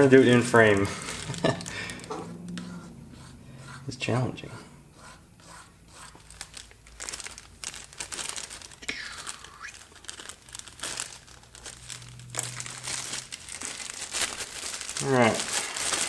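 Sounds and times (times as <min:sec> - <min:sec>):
plastic bag crinkling: 0:00.0 - 0:02.3, 0:06.1 - 0:16.0.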